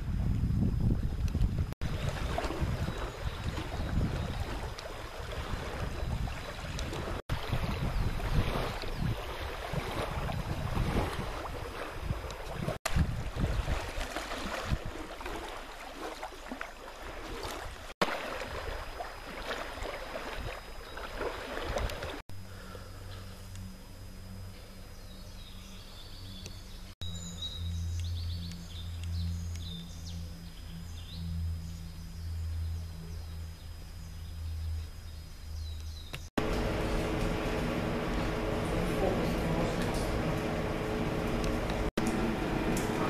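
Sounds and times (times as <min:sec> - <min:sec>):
wind buffeting microphone: 0:00.0 - 0:15.4, 0:21.2 - 0:22.2
low steady hum: 0:00.0 - 0:43.0
small waves lapping at shore: 0:01.8 - 0:22.2.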